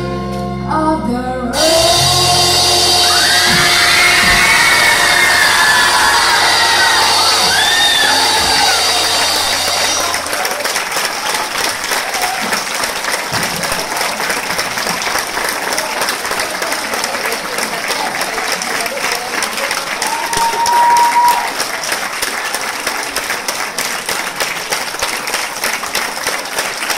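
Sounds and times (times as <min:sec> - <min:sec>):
high whistle note: 0:01.6 - 0:10.2
crowd voices: 0:01.6 - 0:21.9
audience applauding: 0:01.6 - 0:26.9.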